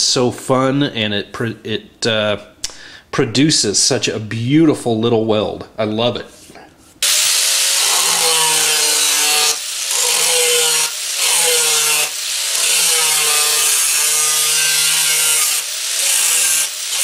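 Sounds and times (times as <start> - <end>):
angle grinder cutting sheet metal: 7.0 - 17.0.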